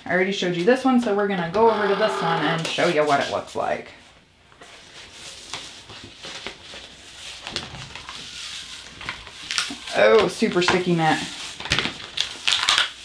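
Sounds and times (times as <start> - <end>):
paper rustling: 4.6 - 13.0.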